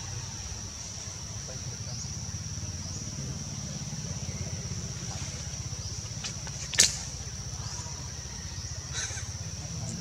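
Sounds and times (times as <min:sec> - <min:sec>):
sharp click: 0:06.2 - 0:07.1.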